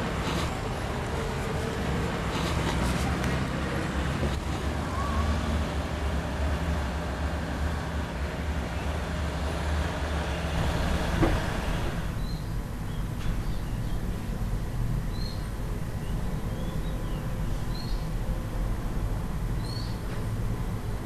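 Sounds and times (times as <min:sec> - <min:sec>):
train rumble: 0:00.0 - 0:21.0
station noise: 0:05.6 - 0:21.0.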